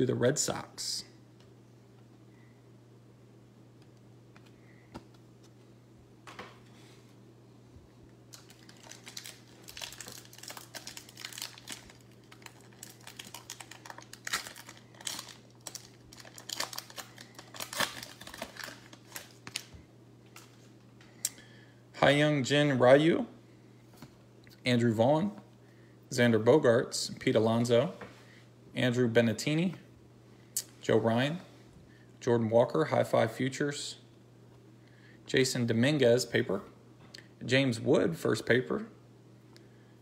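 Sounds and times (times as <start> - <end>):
wrapper crinkling and tearing: 8.3 - 19.8.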